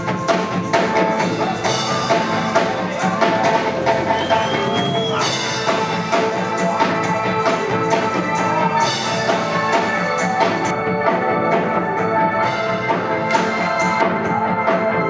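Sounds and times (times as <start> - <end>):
reggae band playing live: 0.0 - 15.0.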